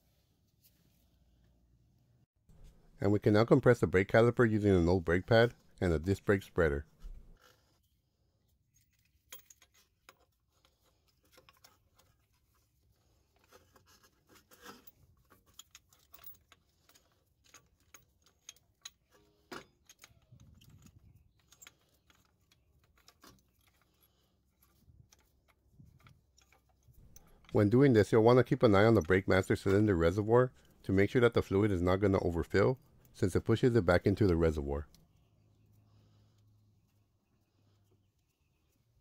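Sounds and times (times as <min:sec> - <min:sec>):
metallic clicks and clinks: 0:14.6 - 0:35.2.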